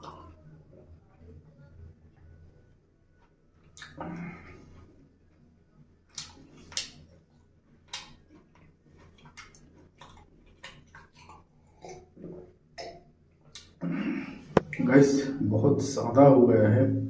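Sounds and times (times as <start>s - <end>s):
person chewing wetly: 3.6s - 4.1s, 6.1s - 7.1s, 7.8s - 13.8s
sipping and swallowing water: 3.7s - 4.7s, 7.9s - 14.8s.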